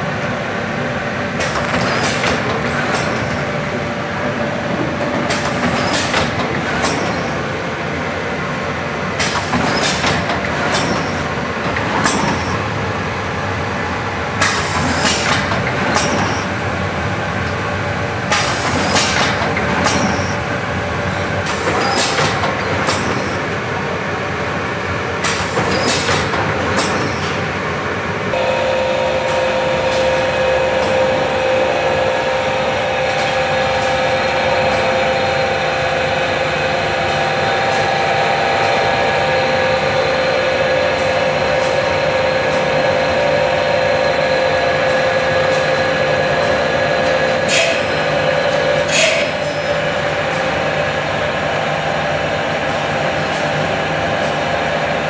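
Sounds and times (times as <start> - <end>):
machinery humming: 0.0 - 55.0.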